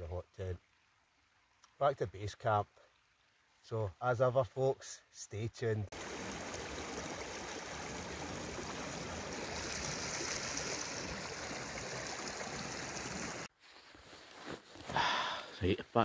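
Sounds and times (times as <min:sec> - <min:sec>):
stream flowing over stones: 0:05.9 - 0:13.5.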